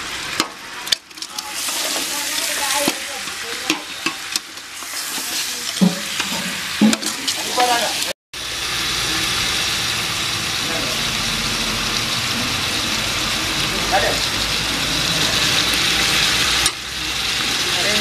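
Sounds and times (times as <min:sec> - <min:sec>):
water pouring into pot: 0:00.4 - 0:18.0
ladle stirring and scraping: 0:00.8 - 0:08.1.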